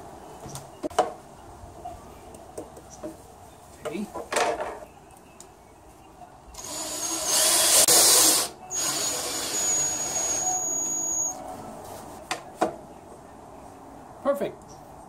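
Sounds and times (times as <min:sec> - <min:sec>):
cordless drill driving screws: 0:06.6 - 0:11.1.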